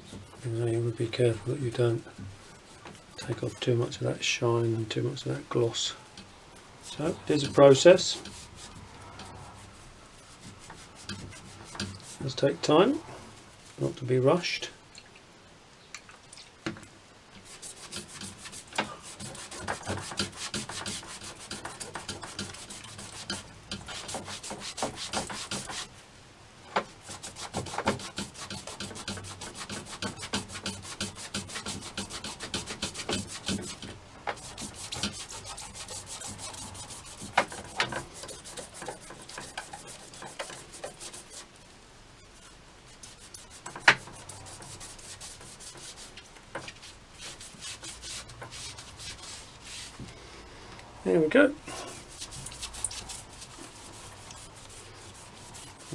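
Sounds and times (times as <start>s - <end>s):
cloth rubbing on fishing rod: 6.8s - 14.0s, 17.4s - 26.0s, 26.9s - 41.6s, 42.3s - 50.1s, 51.6s - 55.9s.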